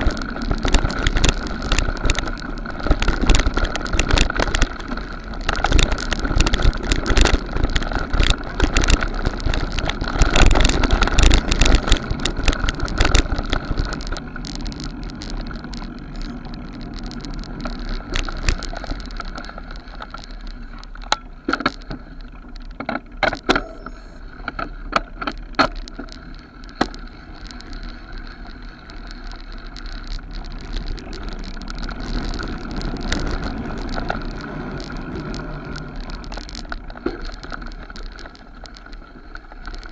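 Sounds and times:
sharp clicks and knocks: 0.0 - 27.8
bike rattling: 0.0 - 39.9
bike tyres rumbling over dirt: 0.0 - 39.9.

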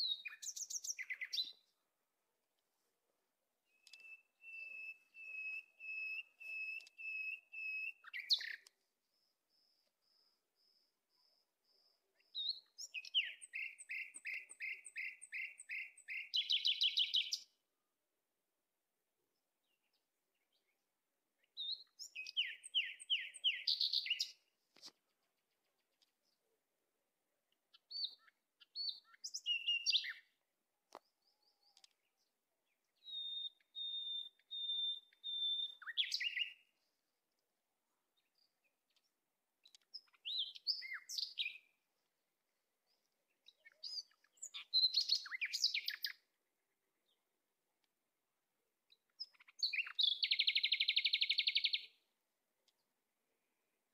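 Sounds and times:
songbird chirping and whistling: 0.0 - 1.6, 3.6 - 8.7, 12.2 - 17.5, 21.5 - 24.4, 27.8 - 30.4, 32.9 - 36.8, 39.9 - 41.7, 43.5 - 46.3, 49.2 - 52.0.

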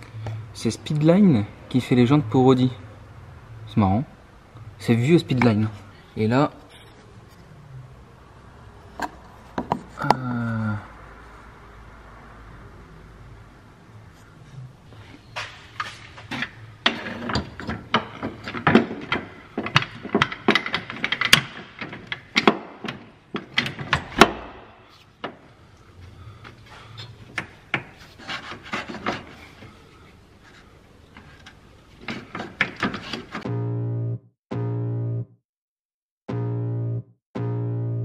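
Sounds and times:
metal tools knocking and scraping: 15.3 - 24.4, 31.2 - 33.4.

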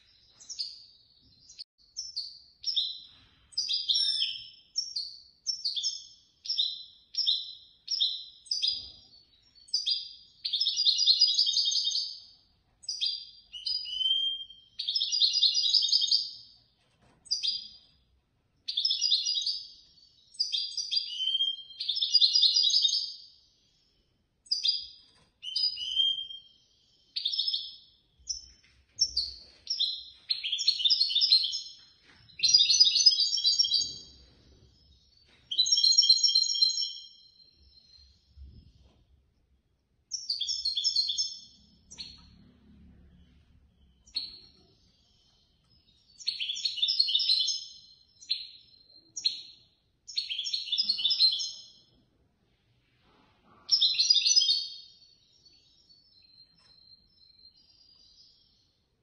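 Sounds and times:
goldfinch singing: 0.3 - 16.6, 24.5 - 34.2, 40.1 - 42.2, 43.9 - 51.9.

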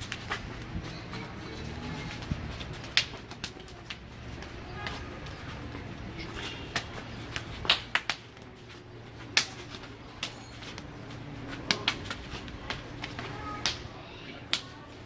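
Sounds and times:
forearms and hands slapping: 2.2 - 5.7, 6.7 - 14.8.

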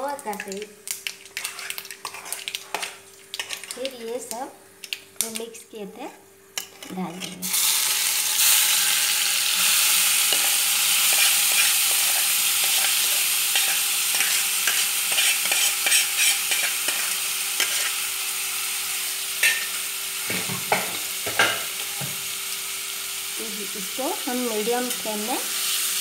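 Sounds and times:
food sizzling in oil: 0.0 - 5.4, 6.5 - 26.0
spatula scraping a pan: 1.4 - 3.8, 10.2 - 18.0.

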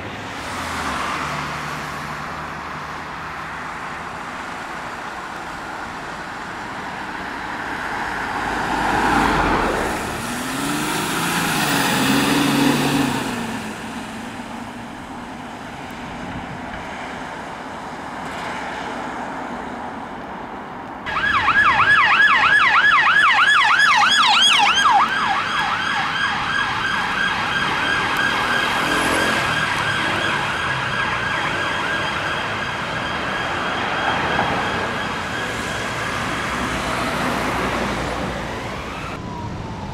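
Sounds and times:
vehicle engine pulling away: 8.5 - 14.9
police siren: 21.1 - 39.9.

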